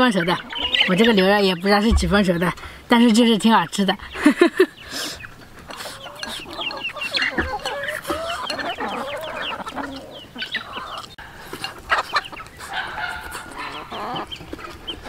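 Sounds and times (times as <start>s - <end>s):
chickens clucking: 0.0s - 15.0s
light clicks of eating: 5.2s - 15.0s.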